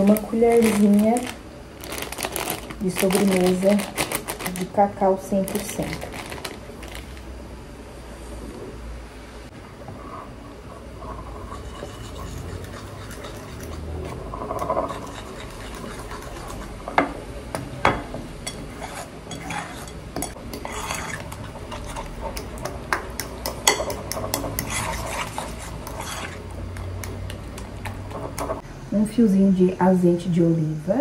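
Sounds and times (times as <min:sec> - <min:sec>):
fork whisking batter: 0:11.0 - 0:16.8, 0:18.4 - 0:28.6.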